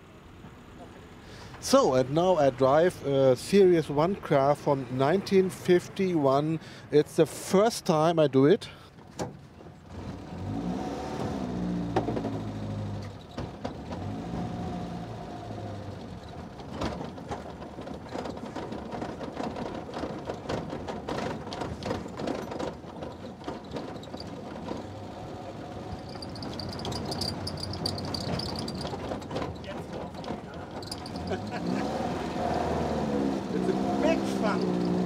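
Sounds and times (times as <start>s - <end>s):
rattling and knocking of car body: 9.0s - 10.2s, 11.9s - 14.2s, 15.4s - 31.6s
car engine running under load: 9.0s - 35.0s
thin high squeal: 26.0s - 28.9s.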